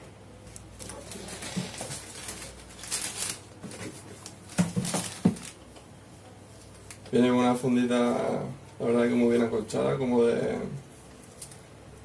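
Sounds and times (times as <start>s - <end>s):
plastic bag crinkling and rustling: 0.5s - 5.7s.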